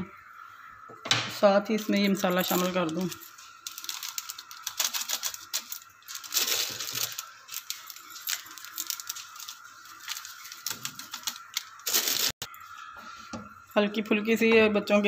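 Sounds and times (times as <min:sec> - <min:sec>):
water boiling with crackle: 0:01.5 - 0:12.6
seasoning hissing rustle: 0:01.6 - 0:13.7.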